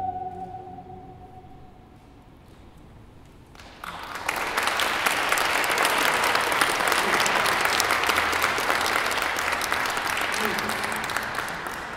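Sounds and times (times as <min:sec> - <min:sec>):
audience applauding: 0:03.6 - 0:11.9.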